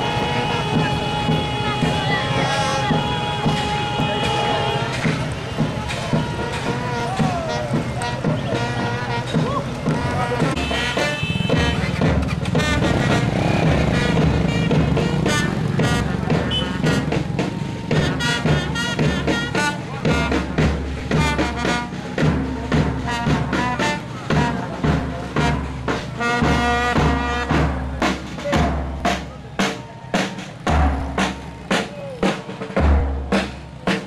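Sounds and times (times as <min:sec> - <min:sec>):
music with drum beat and melody: 0:00.0 - 0:34.0.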